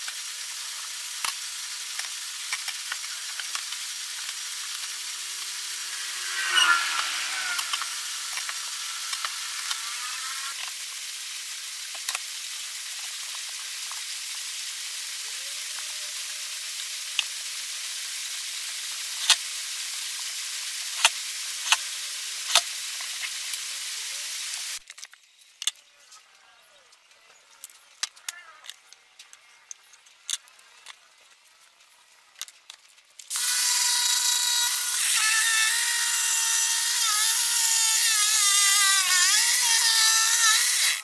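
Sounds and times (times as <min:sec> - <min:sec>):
steady hiss: 0:00.0 - 0:24.8.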